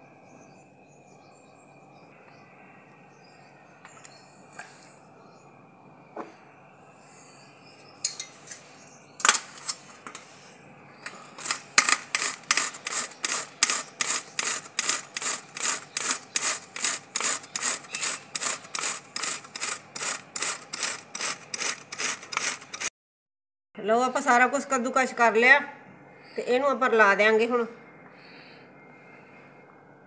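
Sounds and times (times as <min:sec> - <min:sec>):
cauliflower rasping on metal grater: 0:11.0 - 0:22.9.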